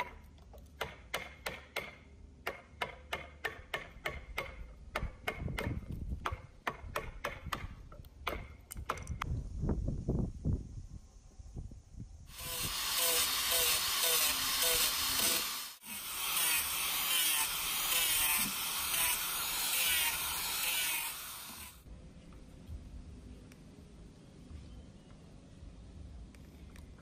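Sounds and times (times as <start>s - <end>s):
angle grinder grinding wood: 12.3s - 21.9s.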